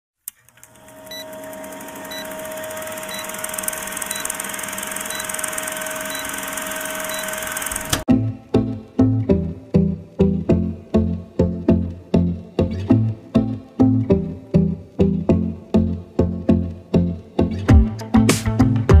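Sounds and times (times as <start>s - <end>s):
short high beeps: 3.0s - 4.4s, 5.0s - 7.5s
plucked-string music with bass: 8.1s - 19.0s.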